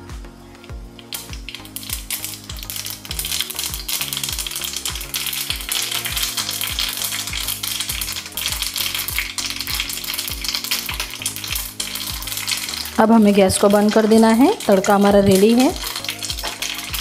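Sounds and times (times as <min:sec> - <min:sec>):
seeds popping in hot oil: 0:00.1 - 0:17.0.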